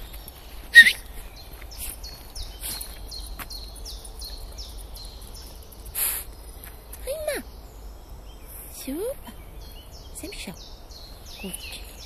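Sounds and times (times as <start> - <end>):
footsteps on gravel: 0.0 - 5.7
small bird singing: 0.0 - 12.0.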